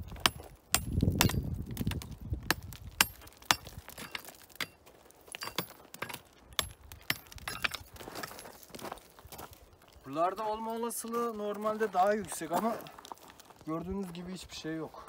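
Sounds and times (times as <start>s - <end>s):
stones crunching underfoot: 0.0s - 15.0s
hammer striking rock: 0.2s - 8.4s.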